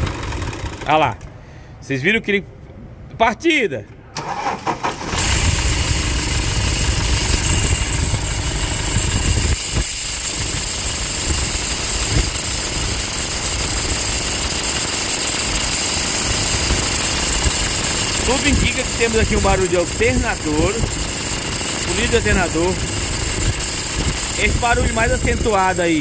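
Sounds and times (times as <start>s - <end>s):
diesel engine idling: 0.0s - 1.0s, 5.0s - 26.0s
high scraping belt hiss: 5.3s - 26.0s.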